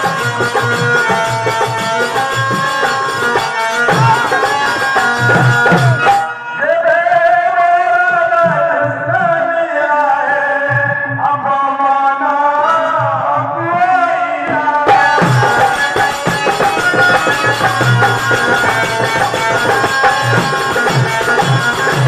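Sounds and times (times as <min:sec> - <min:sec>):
hand drums beating: 0:00.0 - 0:06.3, 0:14.8 - 0:22.0
bright high percussion: 0:00.0 - 0:06.4, 0:14.9 - 0:22.0.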